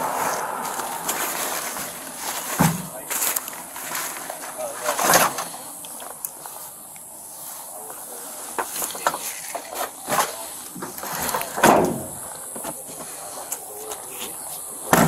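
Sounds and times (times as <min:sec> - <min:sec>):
loud thump: 0:11.6 - 0:12.2.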